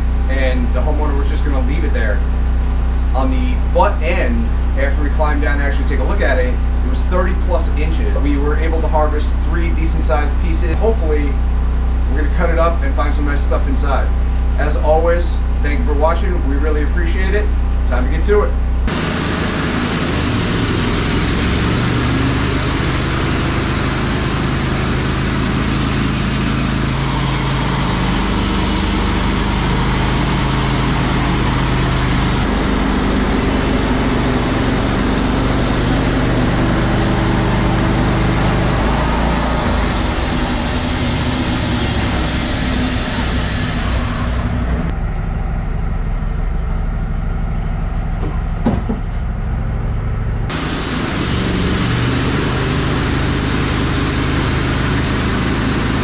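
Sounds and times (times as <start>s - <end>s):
bandsaw mill engine running: 0.0s - 48.5s, 49.2s - 56.0s
band blade hissing through log: 18.9s - 44.6s.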